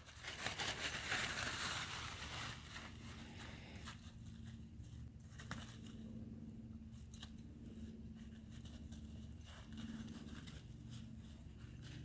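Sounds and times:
footsteps through dry leaves: 0.0 - 4.8
steady low hum: 0.0 - 12.0.

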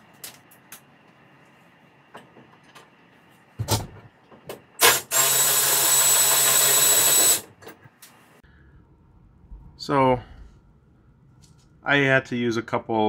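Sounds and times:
cordless ratchet whirring: 4.8 - 7.5.

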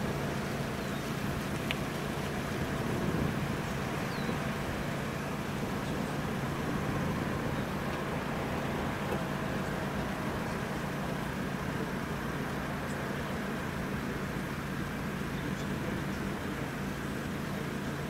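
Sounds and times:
idling traffic hum: 0.0 - 18.0.

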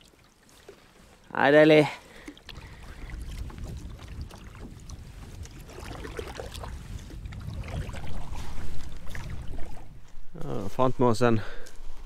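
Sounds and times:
paddle splashing in water: 0.0 - 1.3, 2.0 - 10.2
wind on microphone: 2.4 - 10.7.

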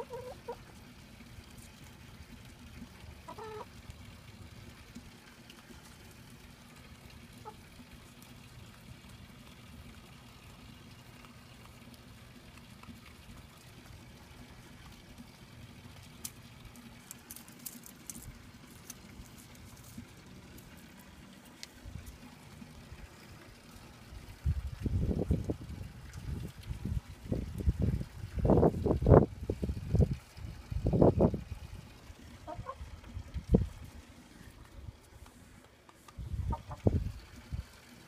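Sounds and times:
chickens clucking: 0.0 - 0.8, 3.2 - 3.8, 32.4 - 32.8, 36.4 - 37.1.

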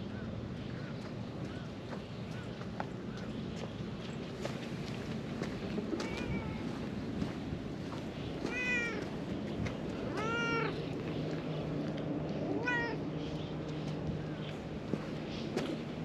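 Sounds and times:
cat meowing: 6.0 - 6.7, 8.5 - 9.1, 10.1 - 10.8, 12.5 - 13.0.

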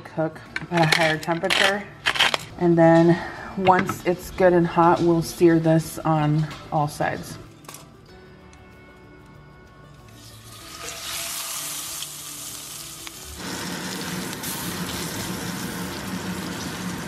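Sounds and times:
meat sizzling in a skillet: 10.2 - 17.0.

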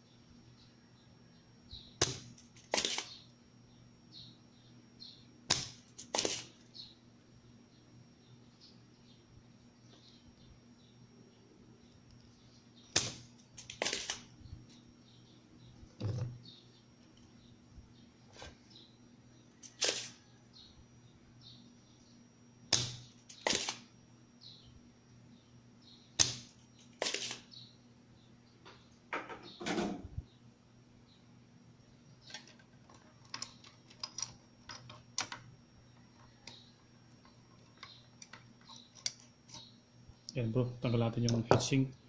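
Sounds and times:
desoldering pump snapping: 2.0 - 3.1, 5.5 - 6.5, 12.9 - 14.8, 22.7 - 23.8, 26.2 - 27.4, 32.2 - 40.4.

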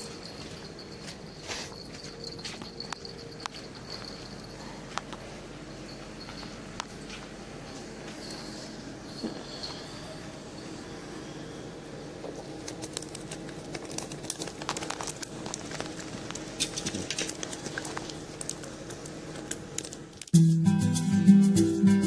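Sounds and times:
low steady hum: 0.0 - 21.8
acoustic guitar music: 20.3 - 22.0.

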